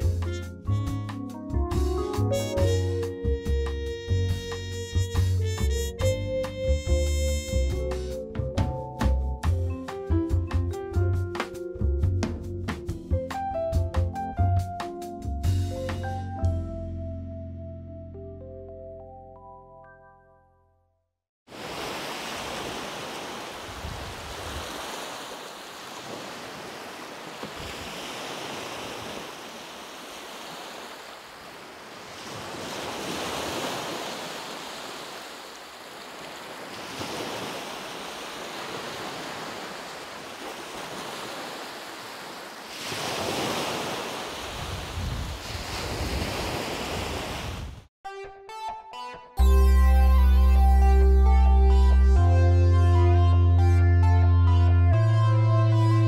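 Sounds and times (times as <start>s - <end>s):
ocean surf on a beach: 21.5s - 47.8s.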